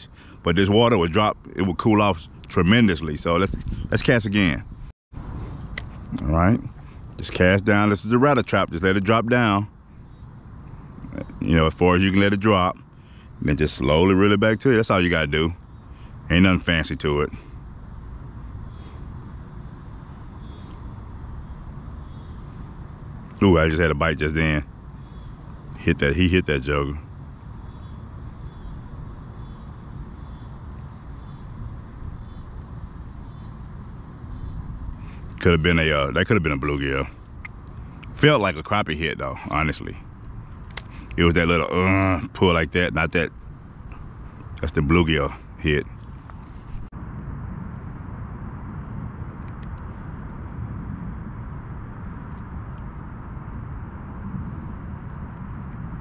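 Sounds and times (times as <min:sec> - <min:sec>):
low steady rumble: 0:00.0 - 0:56.0
faint ticks: 0:40.2 - 0:41.2.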